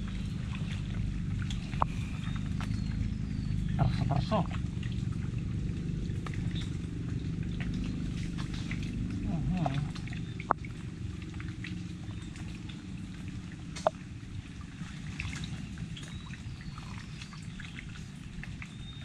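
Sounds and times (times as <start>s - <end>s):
water trickling and splashing: 0.0s - 19.0s.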